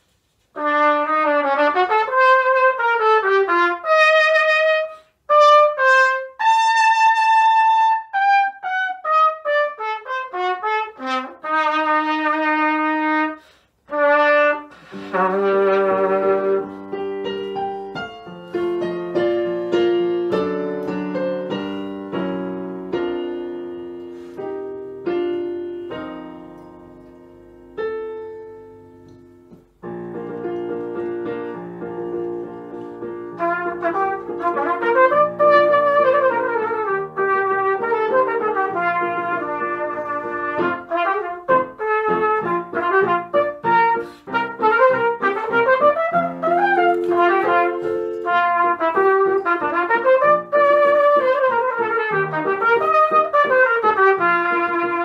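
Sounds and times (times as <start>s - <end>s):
cornet solo: 0.6s - 17.6s, 33.2s - 55.0s
piano chords: 0.6s - 55.0s.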